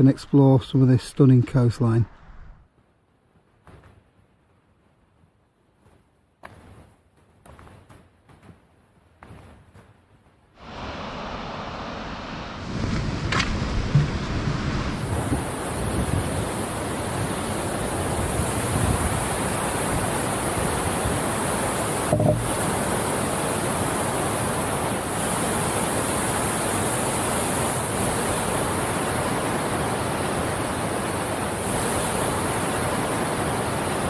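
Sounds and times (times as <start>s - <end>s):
rushing water: 10.6s - 34.0s
brief knock: 12.9s - 14.2s, 22.1s - 22.5s.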